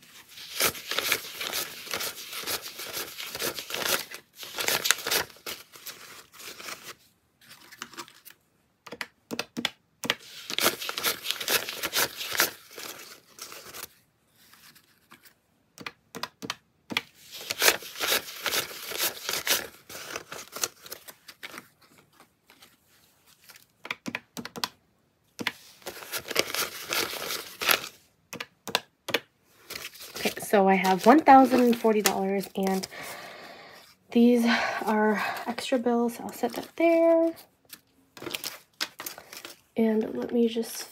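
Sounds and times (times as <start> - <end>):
paper banknotes rustling: 0.0 - 8.4, 10.0 - 15.4, 16.9 - 24.2, 25.4 - 28.0, 29.1 - 39.7
calculator keys tapping: 8.9 - 10.2, 23.8 - 24.8.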